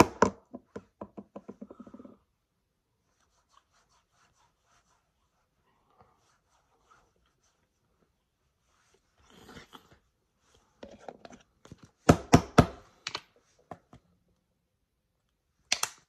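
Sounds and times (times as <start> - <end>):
soft rustle: 2.9 - 10.8.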